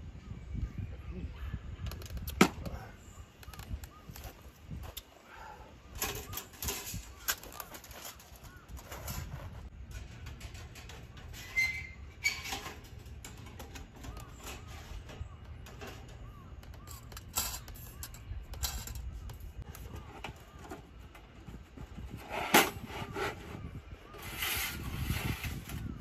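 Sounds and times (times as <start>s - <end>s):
faint bird calls: 0.2s - 9.2s, 13.4s - 21.9s.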